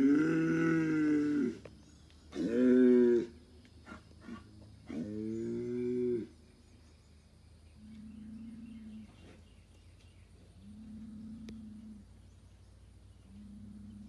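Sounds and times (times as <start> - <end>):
bull bellowing: 0.0 - 1.7, 2.3 - 6.4.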